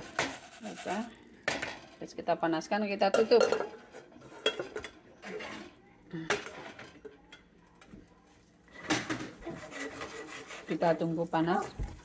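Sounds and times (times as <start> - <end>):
metal cookware clanking: 3.0 - 7.5.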